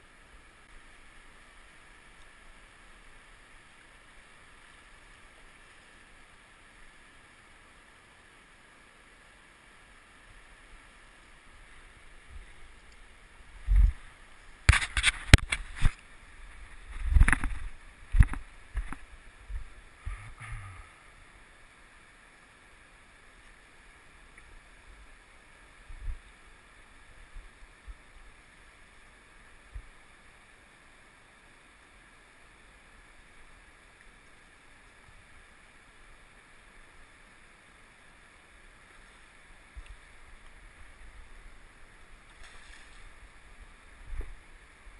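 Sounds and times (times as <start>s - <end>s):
faint river hiss: 0.0s - 44.9s.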